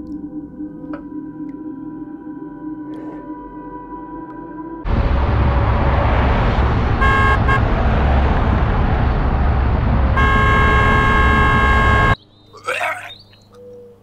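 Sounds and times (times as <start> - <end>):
loud steady rumbling: 4.8 - 12.2
car horn tooting: 7.0 - 7.6, 10.1 - 12.2.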